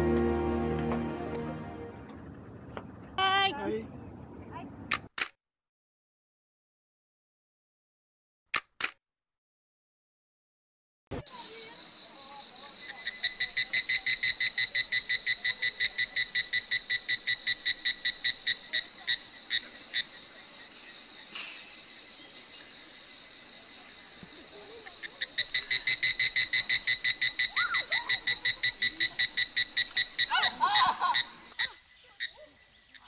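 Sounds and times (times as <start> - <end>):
sharp click: 4.9 - 5.4, 8.5 - 9.0
insects hissing: 11.3 - 33.0
frog croaking: 11.9 - 23.4, 24.9 - 33.0.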